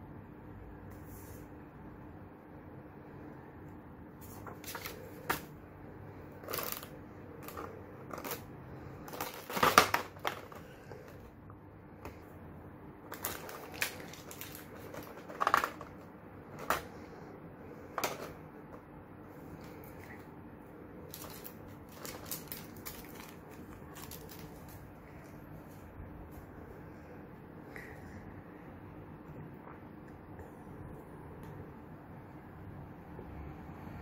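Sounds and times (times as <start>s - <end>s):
plastic packaging crinkling: 4.2s - 5.5s, 6.4s - 11.2s, 13.0s - 16.9s, 21.0s - 25.8s.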